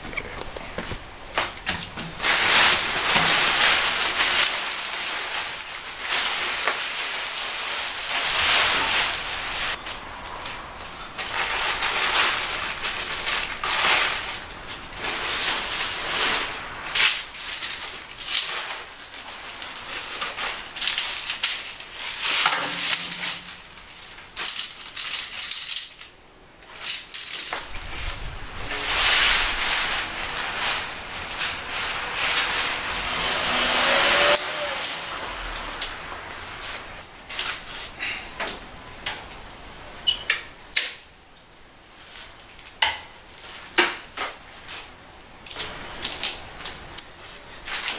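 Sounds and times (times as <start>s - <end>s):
nylon fabric rustling: 0.7s - 25.7s, 26.6s - 38.0s
tent poles clattering: 0.8s - 37.8s.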